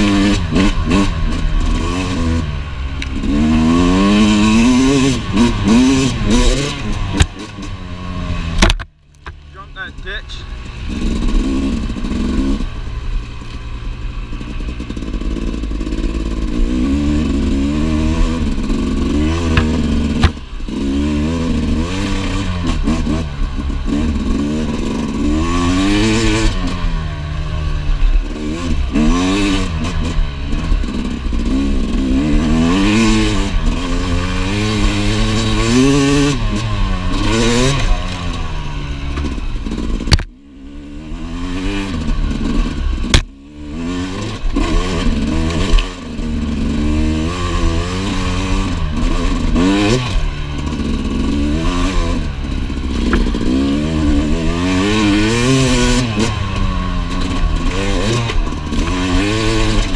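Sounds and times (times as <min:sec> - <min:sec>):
two-stroke motorcycle engine revving: 0:00.0 - 0:59.9
motorcycle knocking over rough ground: 0:08.6 - 0:09.4, 0:19.4 - 0:20.5, 0:53.0 - 0:53.4.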